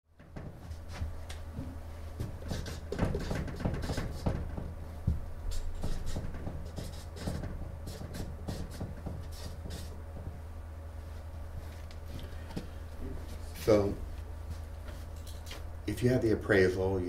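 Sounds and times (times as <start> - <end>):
low room hum: 0.1 - 17.0
marker writing on whiteboard: 2.2 - 10.3.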